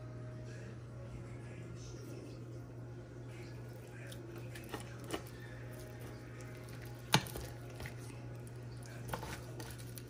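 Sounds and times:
steady low hum: 0.0s - 10.0s
spoon squishing through dip: 3.4s - 10.0s.

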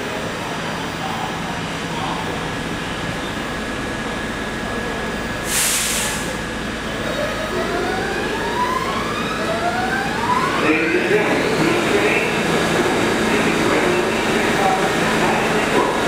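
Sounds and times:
subway train humming: 0.0s - 16.0s
air hiss: 5.4s - 6.4s.

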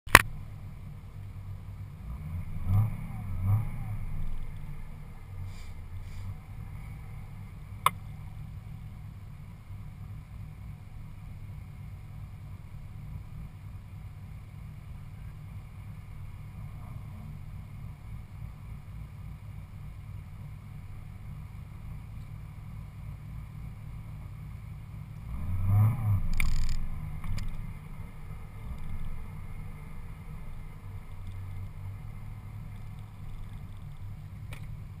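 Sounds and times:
sharp click: 0.1s - 0.3s
car engine idling and revving: 0.1s - 35.0s.

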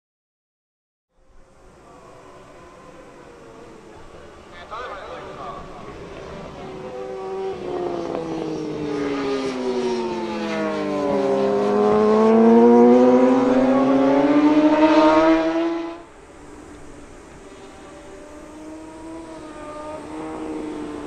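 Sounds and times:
racing motorcycle engine revving: 5.2s - 16.2s, 17.4s - 21.0s.

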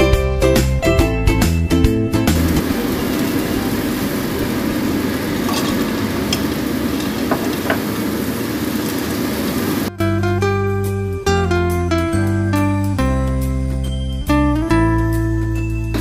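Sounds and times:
food sizzling in a frying pan: 2.4s - 9.9s.

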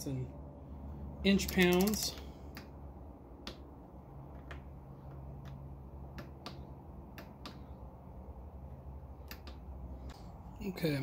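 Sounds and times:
torque wrench clicking: 1.4s - 2.7s.

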